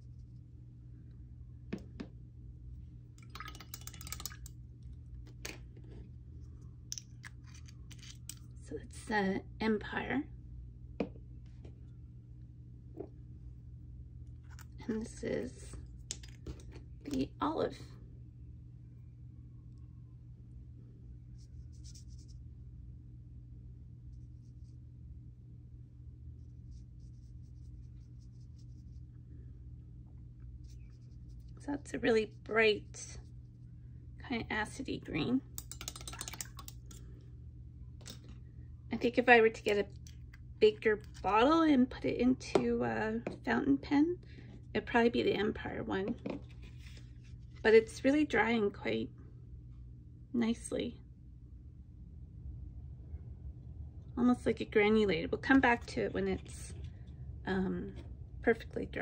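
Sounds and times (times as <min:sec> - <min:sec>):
low steady hum: 0:00.0 - 0:59.0
paintbrush scratching on paper: 0:26.4 - 0:29.1
small ticks of screw cap: 0:35.6 - 0:37.0.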